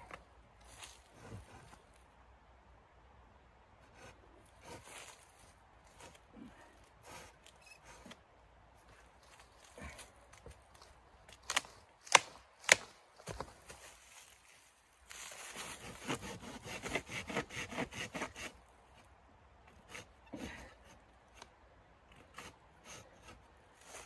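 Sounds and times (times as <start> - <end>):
hand saw cutting branch: 3.9 - 5.2, 15.4 - 18.6, 19.7 - 21.0, 22.1 - 24.0
wood crackling: 9.2 - 13.4
footsteps crunching on dry leaves: 13.2 - 15.6.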